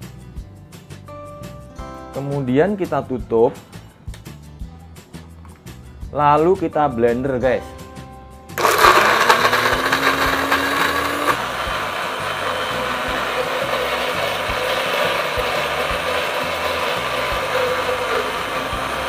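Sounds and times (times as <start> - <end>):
blender grinding: 8.6 - 19.0.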